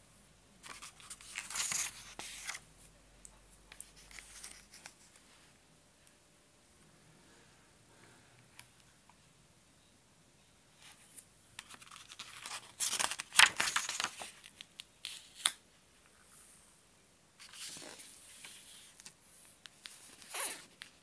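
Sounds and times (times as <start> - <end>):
book pages rustling: 0.6 - 2.6, 3.7 - 5.3, 11.6 - 15.6, 17.4 - 21.0.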